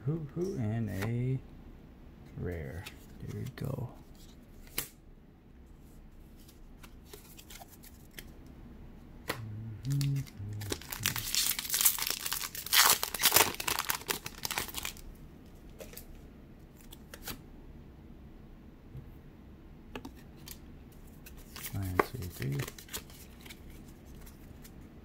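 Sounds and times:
foil wrapper tearing and crinkling: 10.0s - 15.0s.

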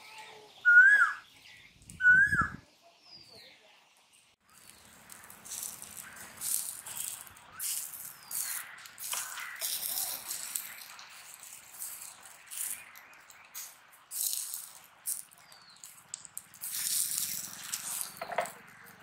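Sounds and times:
oil sizzling on hot charcoal: 4.4s - 19.0s.

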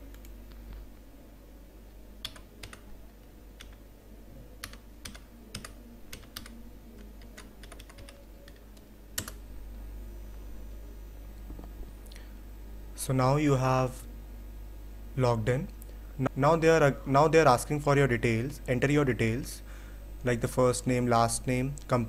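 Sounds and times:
faint low hum: 0.0s - 22.0s
computer keyboard typing: 2.2s - 2.9s, 3.6s - 3.8s, 4.6s - 9.4s.

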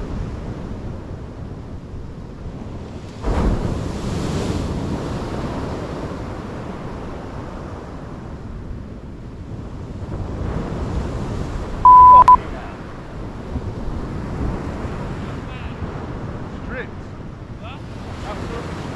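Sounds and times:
surf breaking on beach: 3.0s - 7.9s, 17.8s - 18.9s
electronic beep: 11.9s - 12.4s
wind buffeting microphone: 12.8s - 18.9s.

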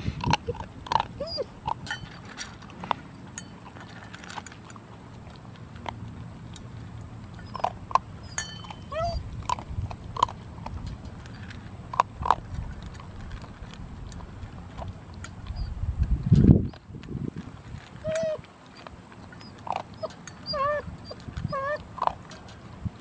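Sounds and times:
wind rumble on microphone: 0.0s - 3.0s, 5.8s - 18.9s, 20.4s - 23.0s
dog crunching dry kibble: 0.0s - 23.0s
puppy whimpering: 0.3s - 1.6s, 7.3s - 9.4s, 15.4s - 15.8s, 18.0s - 22.2s.

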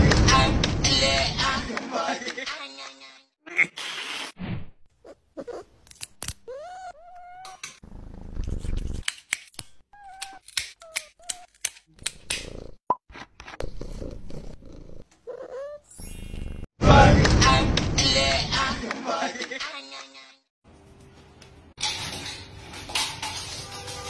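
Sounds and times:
nail clippers clicking: 5.8s - 6.5s, 9.0s - 12.5s
cat meowing: 6.5s - 7.6s.

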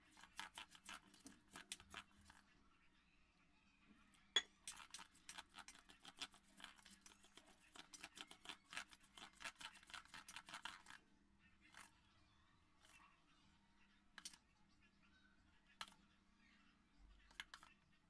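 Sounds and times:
batter slapping in steel bowl: 0.0s - 2.4s, 4.6s - 11.0s.

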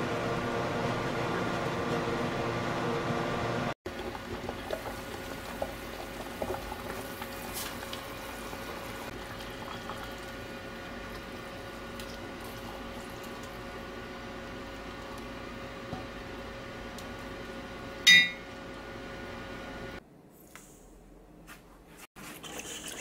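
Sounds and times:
broth simmering with small pops: 3.9s - 16.3s.

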